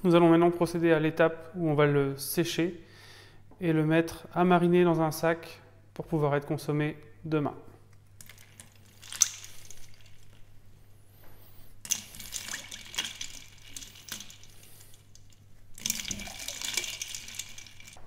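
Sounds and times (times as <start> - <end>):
water sloshing and dripping: 8.2 - 10.5, 11.8 - 18.0.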